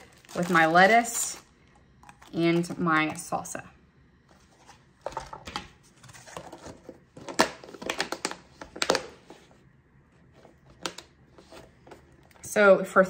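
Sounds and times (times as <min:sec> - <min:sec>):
plastic packaging crinkling: 0:00.0 - 0:02.8.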